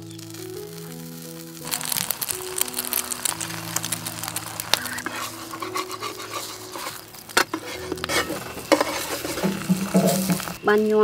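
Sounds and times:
food sizzling in a pan: 0.0s - 11.0s
metal spatula scraping a pan: 2.8s - 10.6s.

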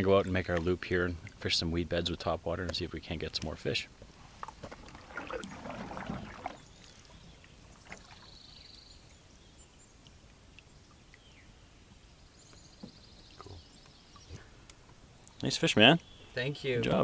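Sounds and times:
paddle stroking through water: 4.3s - 8.4s
water drips: 4.4s - 8.4s, 9.9s - 11.4s.

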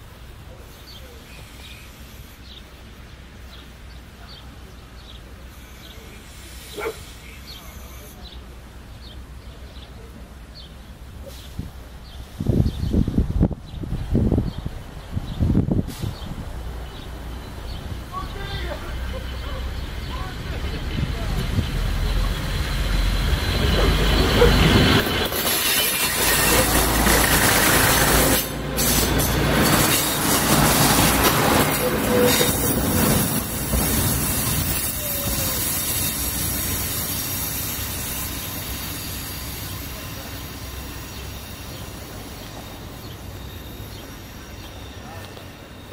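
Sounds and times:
diesel train passing: 0.0s - 45.9s.

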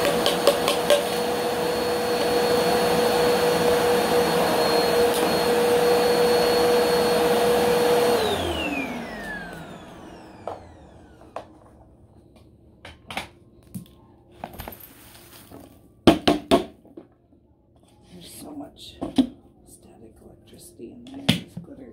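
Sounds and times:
vacuum cleaner running: 0.0s - 11.9s.

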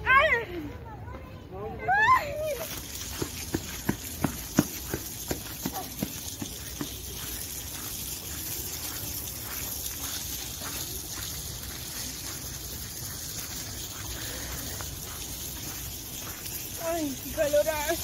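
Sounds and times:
steady rushing outdoor noise: 0.0s - 18.0s
footsteps on gravel: 2.4s - 18.0s.

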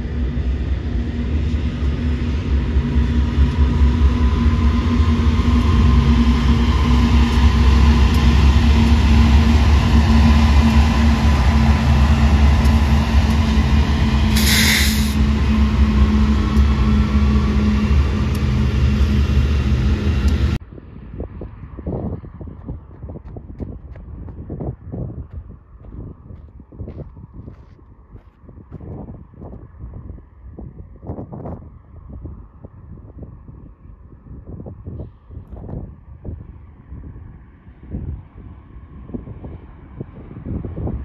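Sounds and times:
locomotive engines droning: 0.0s - 22.8s
rumbling train wheels: 0.0s - 29.8s
brief hiss: 14.3s - 15.2s.

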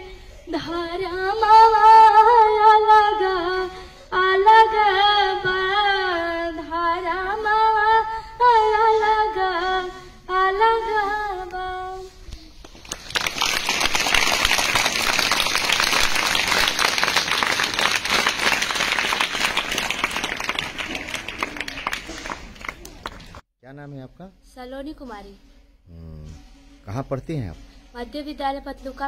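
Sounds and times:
girl singing unaccompanied: 0.0s - 12.2s
children clapping: 12.6s - 23.4s.

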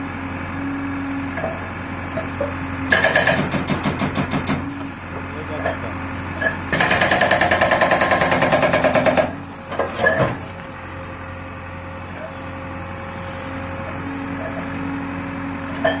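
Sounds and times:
diesel engine running: 0.0s - 16.0s
hydraulic breaker hammering concrete: 2.8s - 4.7s, 6.4s - 10.5s.

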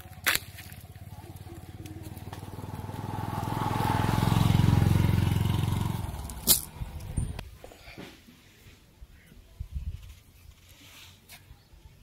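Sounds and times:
motorcycle passing by: 0.0s - 7.4s.

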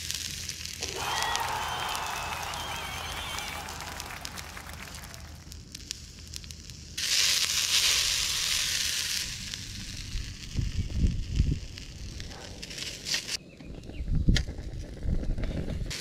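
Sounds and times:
noodles sizzling in frying pan: 0.0s - 3.2s, 5.5s - 13.2s.

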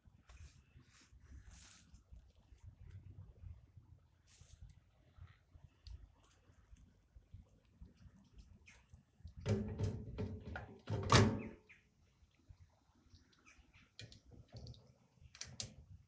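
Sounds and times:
faint clicks: 4.6s - 9.4s.

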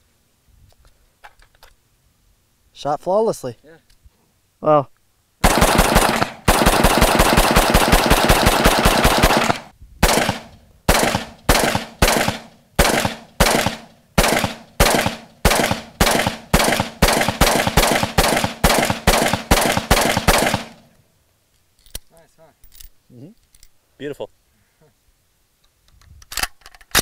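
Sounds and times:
rifle firing rapid shots: 5.4s - 20.8s
rifle single shots: 5.4s - 20.9s.

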